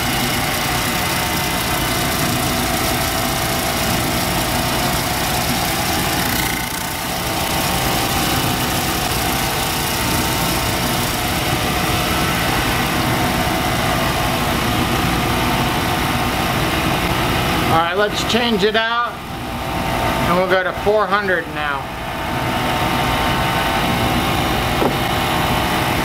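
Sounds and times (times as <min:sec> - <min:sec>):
polishing machine drone: 0:00.0 - 0:17.7.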